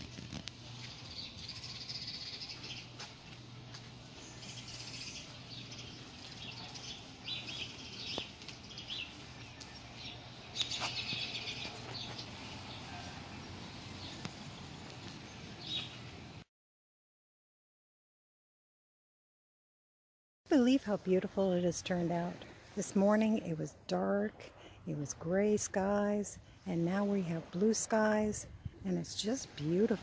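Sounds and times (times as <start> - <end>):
steady low hum: 0.0 - 16.4
small birds chirping: 0.3 - 16.4.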